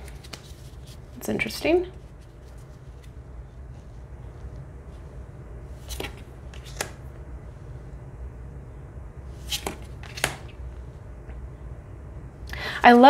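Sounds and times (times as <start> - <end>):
cards swishing off a deck: 0.0 - 1.0, 5.8 - 7.0, 9.4 - 10.5
low steady hum: 0.0 - 13.0.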